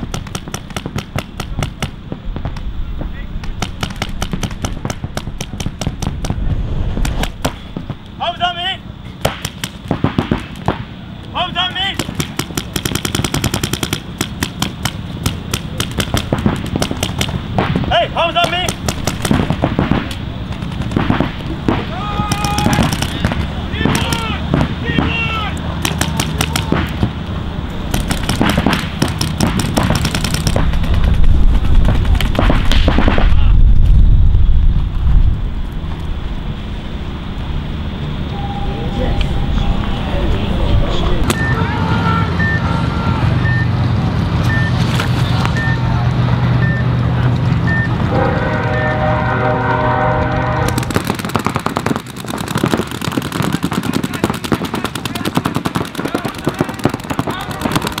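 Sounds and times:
paintball markers firing: 0.0s - 2.7s, 3.4s - 6.4s, 9.2s - 10.9s, 11.8s - 27.2s, 27.9s - 33.4s, 50.7s - 58.0s
loud low rumble: 6.0s - 8.1s, 29.8s - 44.5s
steady multi-pitch tone: 37.1s - 44.8s.

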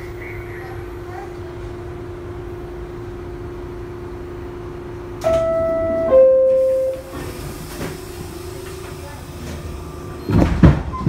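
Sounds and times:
two-tone descending door chime: 5.2s - 7.2s.

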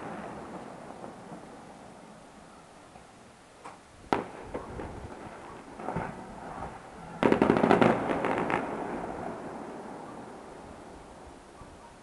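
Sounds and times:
distant fireworks cracking: 0.0s - 11.6s.

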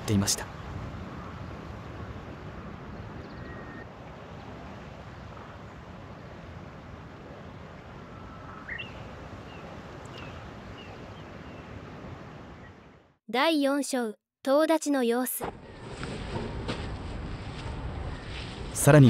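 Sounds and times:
wind rumble on microphone: 0.4s - 12.9s
bird chirps: 8.1s - 11.7s.

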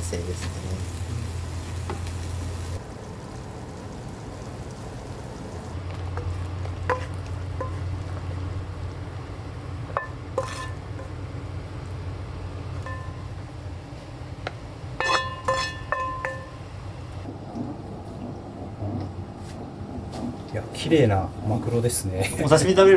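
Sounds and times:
steady low hum: 0.0s - 22.9s
kitchenware clinking: 9.9s - 11.2s, 12.8s - 13.4s, 15.0s - 16.6s.

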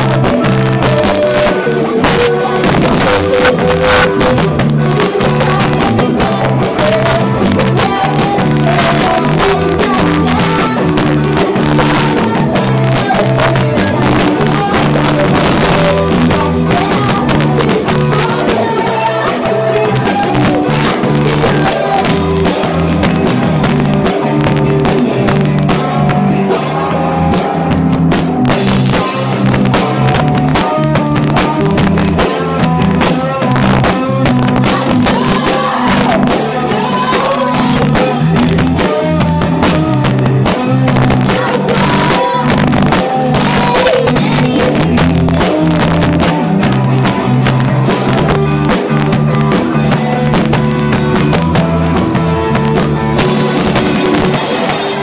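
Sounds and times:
woman singing into microphone: 0.0s - 23.2s, 28.9s - 47.6s
live rock band playing: 0.0s - 55.0s.

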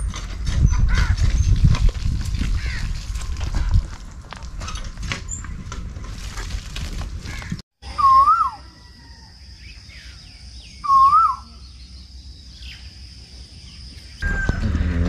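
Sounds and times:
whistled bird calls: 7.8s - 12.8s, 14.1s - 14.9s
faint chirps of other birds: 7.8s - 14.6s.

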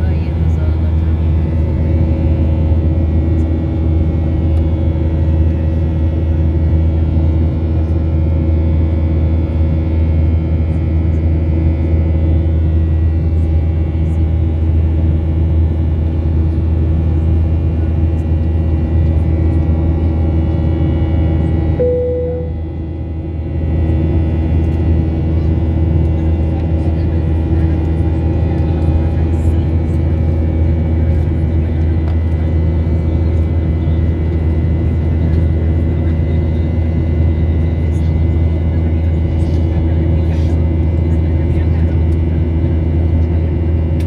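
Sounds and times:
jet engine cabin drone: 0.0s - 44.0s
short single tone: 21.8s - 22.7s.

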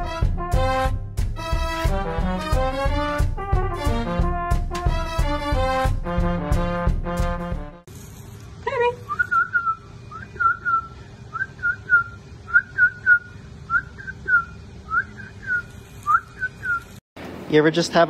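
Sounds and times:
brass band music: 0.0s - 7.9s
person whistling sliding notes: 9.1s - 17.0s.

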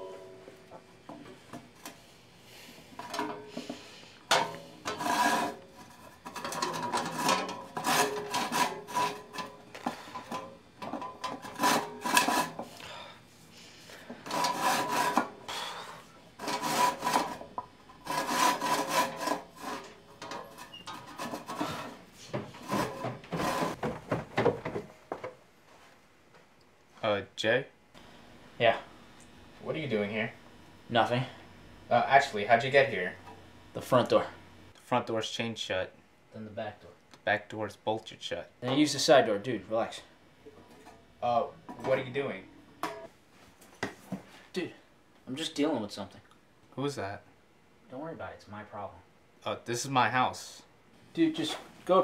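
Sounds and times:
handsaw rasping strokes: 4.9s - 6.1s, 7.0s - 9.4s, 11.4s - 12.7s, 14.2s - 15.3s, 16.4s - 17.4s, 18.0s - 19.9s, 22.6s - 23.8s.

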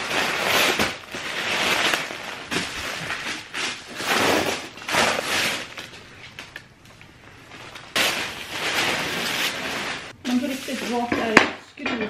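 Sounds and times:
packing paper rustling: 0.0s - 6.7s, 7.3s - 11.1s.

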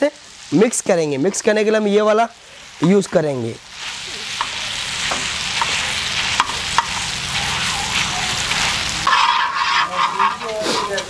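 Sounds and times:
food sizzling in oil: 0.0s - 11.0s
utensil clicking against pan: 9.1s - 11.0s.

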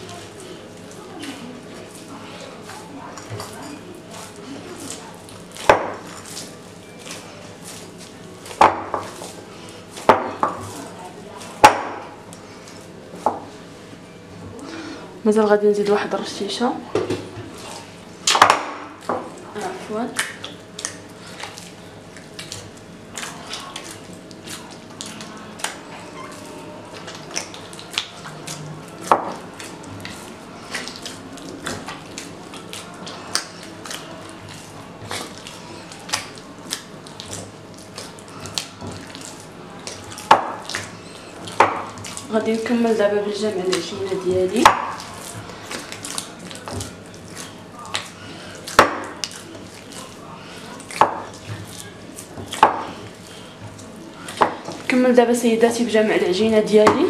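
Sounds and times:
dough being mixed by hand: 0.0s - 57.0s.

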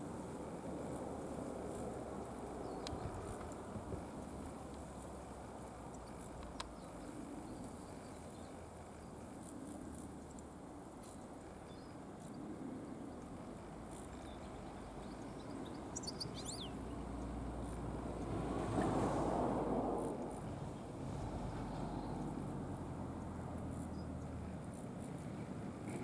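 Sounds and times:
low outdoor rumble: 12.4s - 26.0s.

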